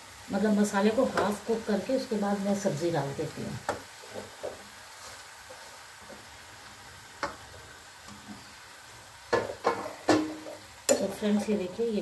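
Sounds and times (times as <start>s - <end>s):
faint sizzling in a pan: 0.0s - 12.0s
spoon knocking on pan: 3.6s - 4.6s, 9.3s - 11.1s.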